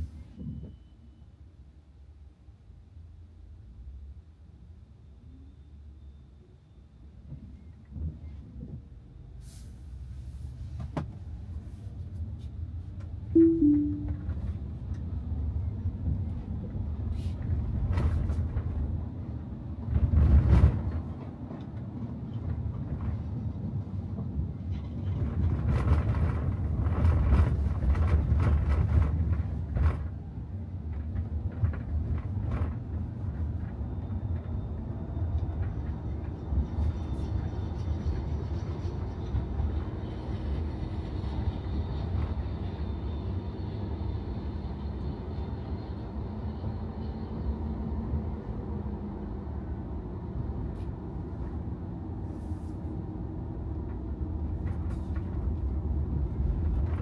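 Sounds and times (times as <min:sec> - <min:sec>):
falling two-note tone: 0:13.4 - 0:14.4
road and tyre rumble: 0:14.6 - 0:57.0.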